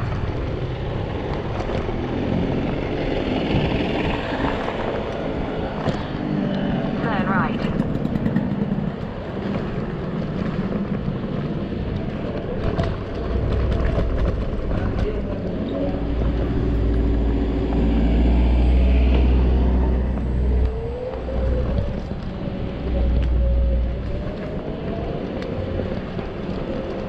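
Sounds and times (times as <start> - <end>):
tyre and road noise: 0.0 - 27.0
wind rumbling on microphone: 0.0 - 27.0.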